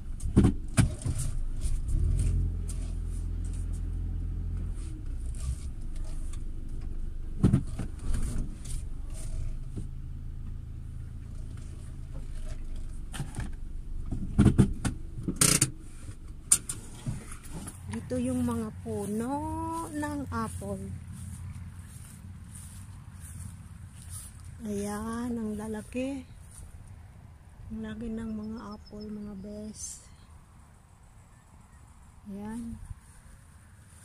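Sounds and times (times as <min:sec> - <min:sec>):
engine and road hum: 0:00.0 - 0:34.0
sharp knocks and rattles: 0:11.4 - 0:18.1.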